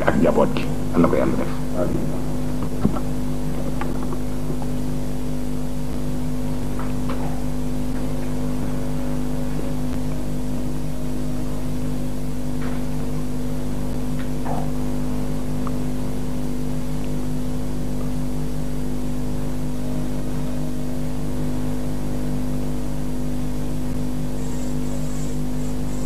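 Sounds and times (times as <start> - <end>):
electrical mains hum: 0.0 - 26.0.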